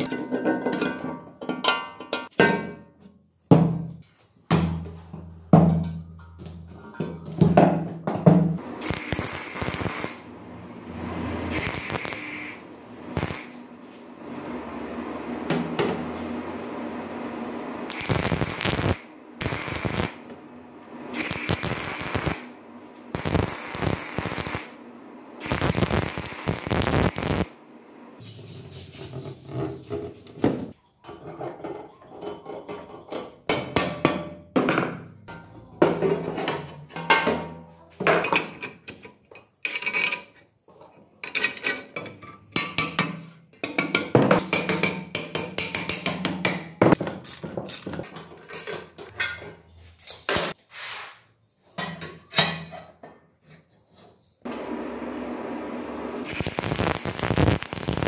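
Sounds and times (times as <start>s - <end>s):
stick welder crackling: 8.8s - 10.3s, 11.5s - 13.7s, 17.9s - 20.3s, 21.1s - 24.8s, 25.4s - 27.6s, 56.2s - 58.0s.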